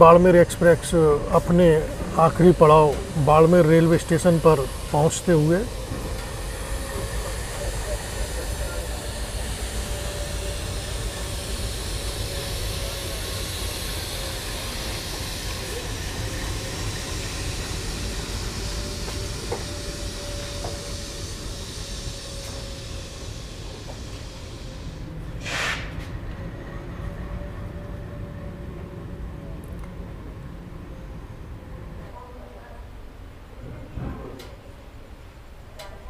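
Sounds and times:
train wheels rumbling on track: 0.0 - 36.0
hiss: 0.5 - 26.2.

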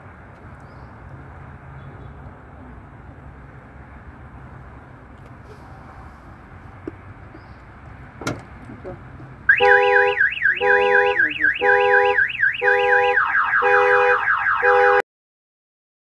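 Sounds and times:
car alarm siren: 9.5 - 15.0.

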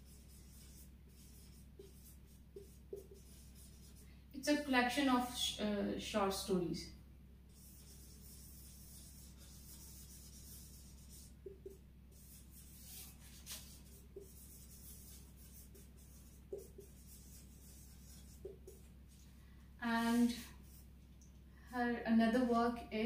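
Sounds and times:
marker pen scratching on whiteboard: 0.0 - 4.0, 7.5 - 18.9, 20.0 - 20.9.

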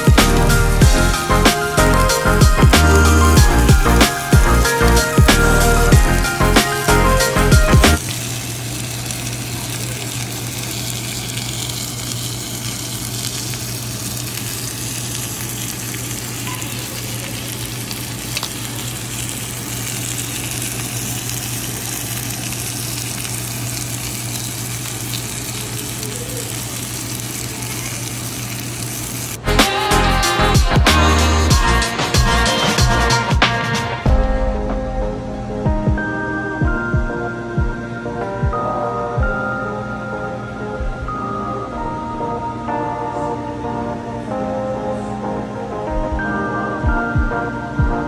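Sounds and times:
music: 0.0 - 8.0, 29.4 - 48.0
squid sizzling on grill pan: 0.3 - 33.2.

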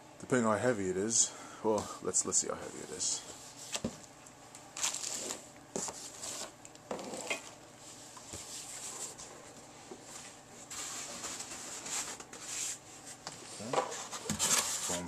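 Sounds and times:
cardboard and foam scraping: 13.5 - 15.0.

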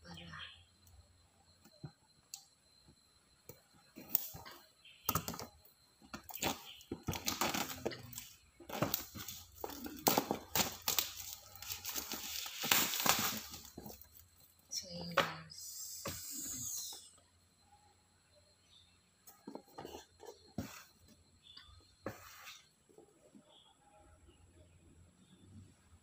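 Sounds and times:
shrink wrap crinkling: 8.8 - 14.2.

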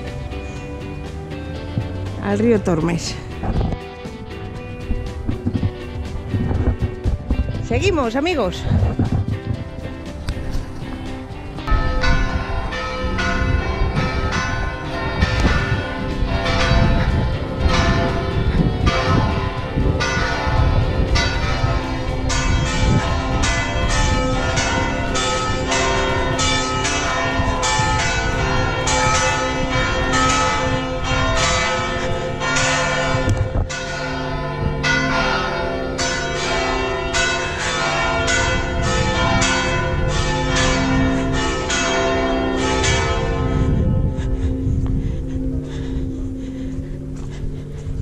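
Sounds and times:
church bells ringing: 0.0 - 0.9, 11.6 - 48.0.

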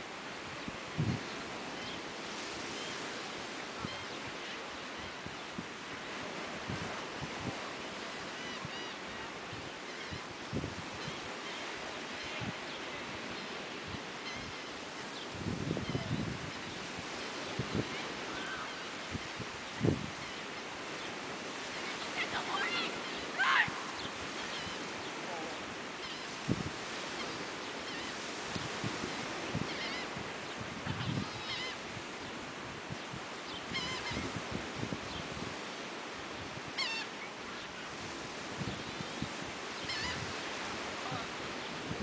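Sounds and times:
surf washing on beach: 0.0 - 42.0
wind on microphone: 0.0 - 42.0
high wavering bird calls: 17.9 - 26.4, 30.9 - 31.8, 33.5 - 34.3, 36.7 - 37.5, 39.8 - 40.4
short high cries: 22.2 - 23.9.

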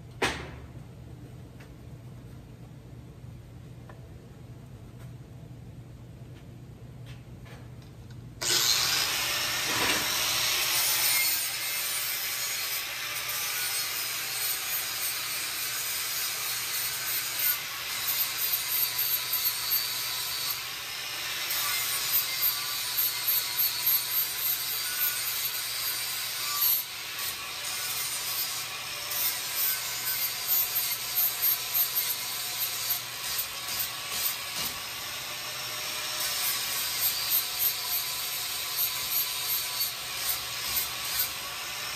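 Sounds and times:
angle grinder on steel: 8.4 - 41.9.

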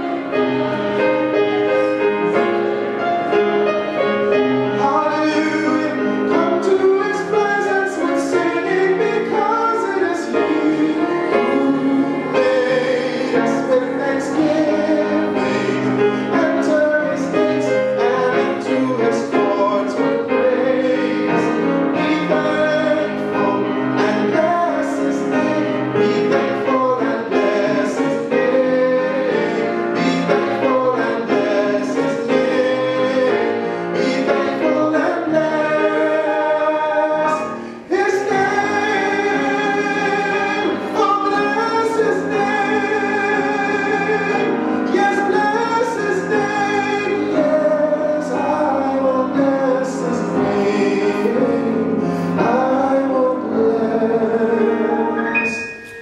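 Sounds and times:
keyboard playing: 0.0 - 56.0
man singing gospel song: 4.7 - 55.7.

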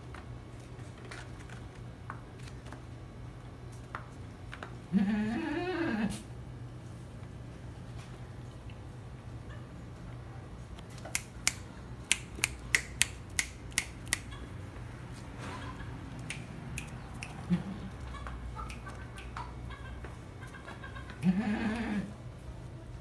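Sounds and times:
sharp clicks: 11.0 - 14.4, 16.2 - 17.5.

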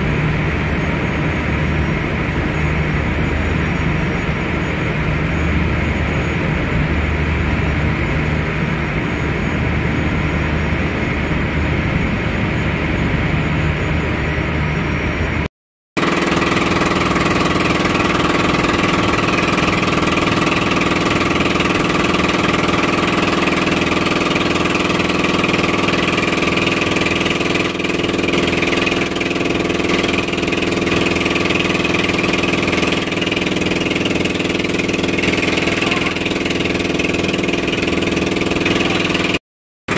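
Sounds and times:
boat engine running: 0.0 - 39.9
rushing water noise: 16.0 - 39.4.

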